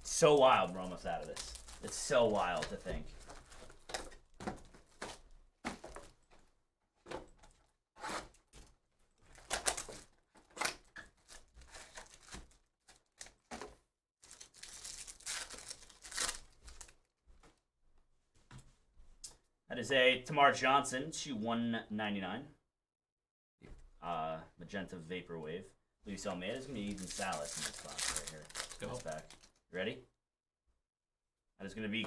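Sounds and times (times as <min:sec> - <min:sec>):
foil pack tearing open: 0:14.2 - 0:16.9, 0:27.0 - 0:29.5.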